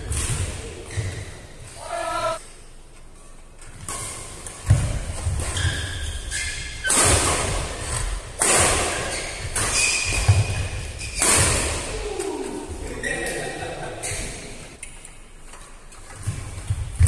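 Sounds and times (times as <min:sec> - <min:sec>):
shoes squeaking on court: 0:00.0 - 0:01.7, 0:03.8 - 0:06.9, 0:08.9 - 0:11.4
racket hitting shuttlecock: 0:03.7 - 0:12.5.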